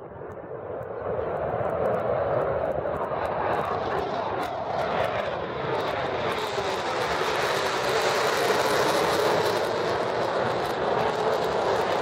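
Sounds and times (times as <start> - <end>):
jet roaring overhead: 0.0 - 12.0.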